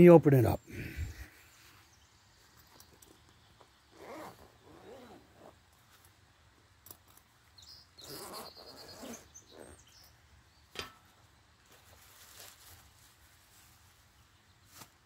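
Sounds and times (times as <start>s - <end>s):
zipper pulled open: 3.9s - 5.6s, 8.0s - 9.8s.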